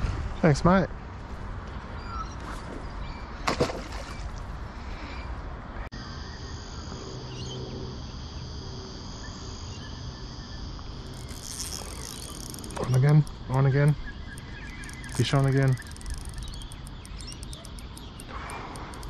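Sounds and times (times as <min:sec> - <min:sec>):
high-pitched insect chorus: 0:05.9 - 0:19.0.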